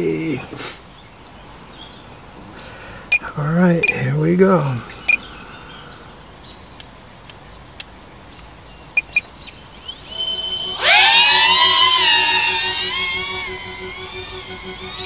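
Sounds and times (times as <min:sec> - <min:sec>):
drone motors whining: 0:09.6 - 0:15.0
short beeps: 0:09.8 - 0:12.0.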